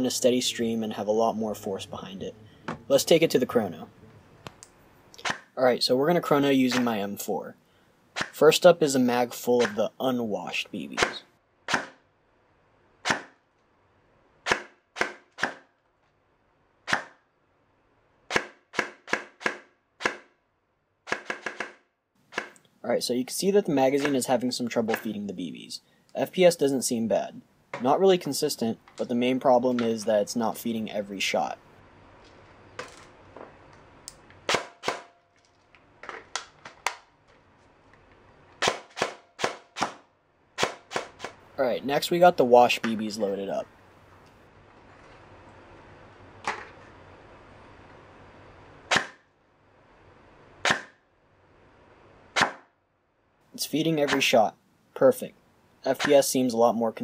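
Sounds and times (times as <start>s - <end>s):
airsoft gun firing single shots: 8.2s - 8.4s, 11.0s - 12.0s, 13.0s - 13.4s, 14.4s - 15.7s, 16.8s - 17.2s, 18.3s - 20.4s, 21.0s - 22.6s, 34.5s - 35.2s, 38.6s - 41.4s, 48.9s - 49.3s, 50.6s - 51.0s, 52.3s - 52.7s.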